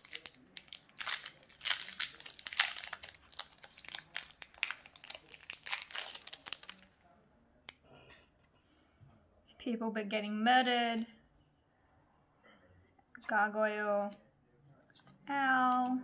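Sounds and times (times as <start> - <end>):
foil wrapper crinkling: 0.0 - 6.9.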